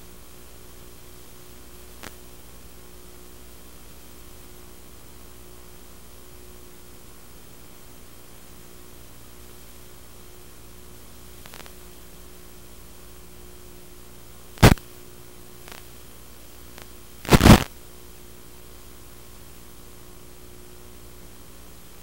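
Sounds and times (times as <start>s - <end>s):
steady receiver hiss: 0.0s - 5.4s, 7.2s - 22.0s
faint hum: 0.0s - 22.0s
static bursts: 1.9s - 2.2s, 11.4s - 11.8s, 14.6s - 14.9s, 15.6s - 16.0s, 16.6s - 17.8s.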